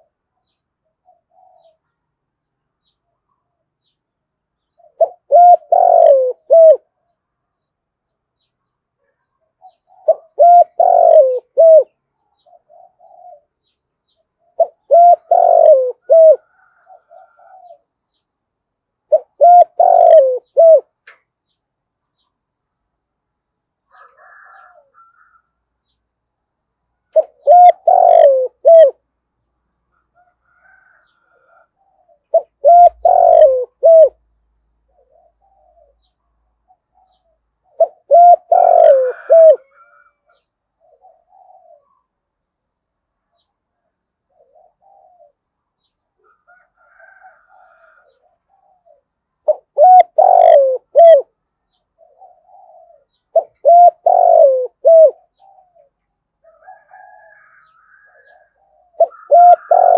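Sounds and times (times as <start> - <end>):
dove cooing: 1.0 - 1.8, 4.7 - 7.0, 9.0 - 13.7, 14.4 - 17.9, 19.1 - 21.0, 27.0 - 29.1, 30.1 - 42.2, 43.8 - 45.5, 46.2 - 59.9
faint bird chirps: 30.2 - 42.3.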